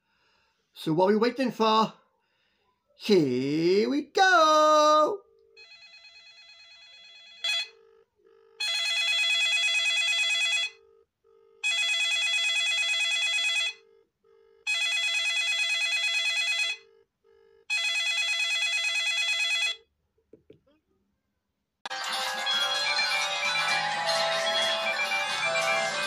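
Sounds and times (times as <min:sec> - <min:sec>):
bell-like phone ringtone: 0:05.6 - 0:07.8, 0:08.6 - 0:10.8, 0:11.6 - 0:13.8, 0:14.7 - 0:16.8, 0:17.7 - 0:19.8, 0:21.9 - 0:26.0.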